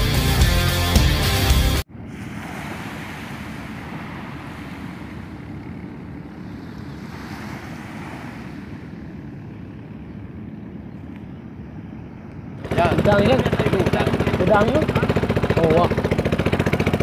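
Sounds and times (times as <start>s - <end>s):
wind rumbling on microphone: 1.9s - 17.0s
small waves washing onto sand: 2.0s - 9.2s.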